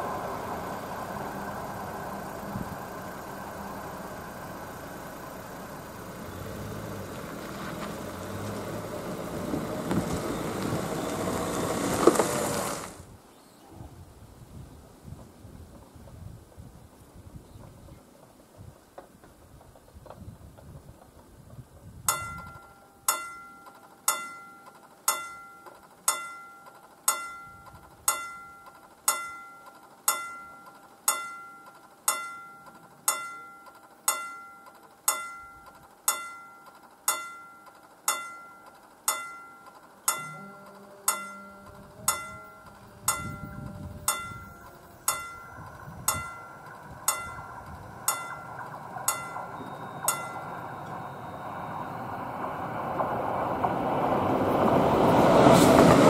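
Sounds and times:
approaching train rush: 0:00.0 - 0:13.1, 0:41.8 - 0:56.0
low hum: 0:00.0 - 0:14.3, 0:22.1 - 0:56.0
level crossing warning bell: 0:22.1 - 0:53.7.

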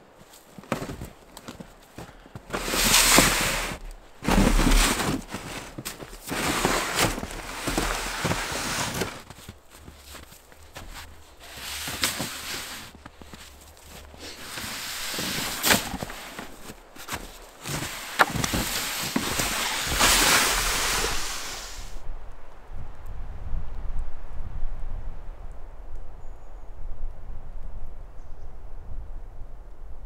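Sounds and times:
boots crunching through snow: 0:00.2 - 0:22.0
sled scraping over snow: 0:00.2 - 0:22.0.

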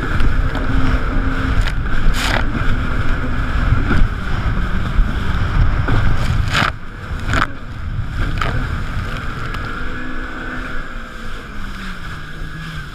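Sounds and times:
jet ski engine droning: 0:00.0 - 0:12.9
wind buffeting microphone: 0:00.0 - 0:12.9
water spray and slaps: 0:01.5 - 0:02.6.

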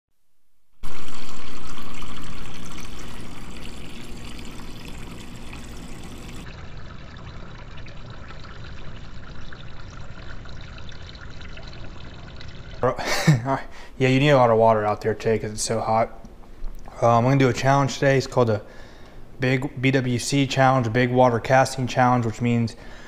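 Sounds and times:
water pouring into plastic cup: 0:00.8 - 0:13.0.

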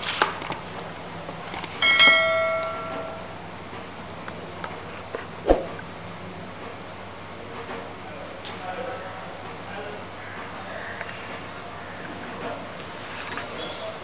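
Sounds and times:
click: 0:00.4 - 0:00.6
bright bell chime: 0:01.8 - 0:03.3.

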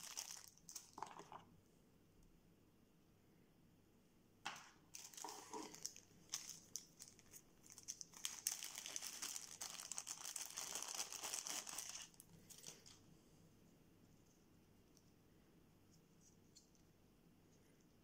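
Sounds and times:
plastic bag crinkling: 0:00.0 - 0:01.4, 0:04.9 - 0:13.0.

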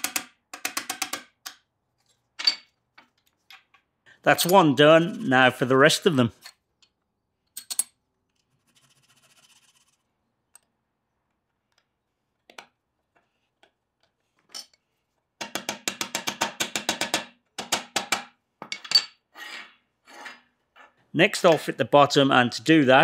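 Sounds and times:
metal pieces clicking and knocking: 0:00.0 - 0:01.7, 0:06.4 - 0:08.0.

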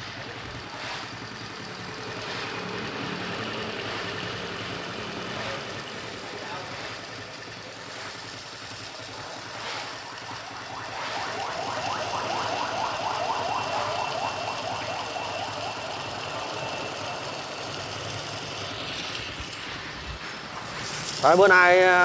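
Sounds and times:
motorcycle engine idling: 0:00.0 - 0:22.0
rapid repeating chirp: 0:08.5 - 0:20.0.

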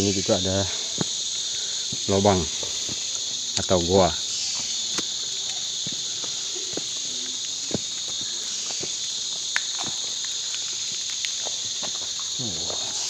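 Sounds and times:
insect chorus drone: 0:00.0 - 0:13.0
footsteps on rock: 0:00.8 - 0:01.2, 0:01.8 - 0:03.8, 0:04.5 - 0:10.3, 0:11.0 - 0:12.9.

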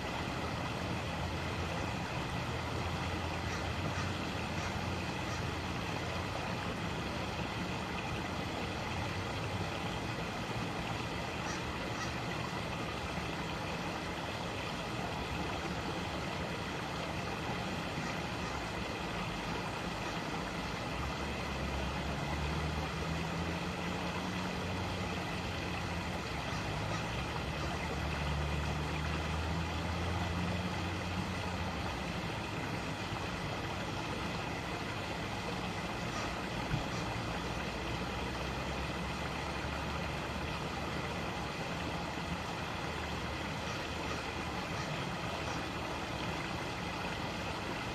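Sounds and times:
creek water rushing: 0:00.0 - 0:47.9
passing vehicle engine hum: 0:18.4 - 0:47.9.

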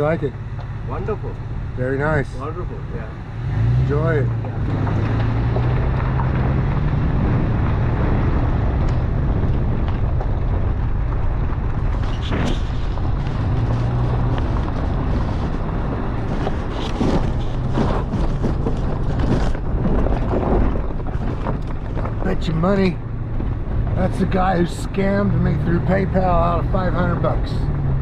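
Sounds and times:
vehicle engine humming: 0:00.0 - 0:28.0
wind buffeting microphone: 0:00.0 - 0:28.0.

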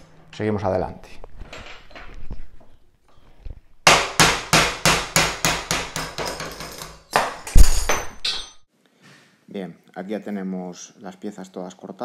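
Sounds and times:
hammer striking metal punch: 0:03.9 - 0:08.6.

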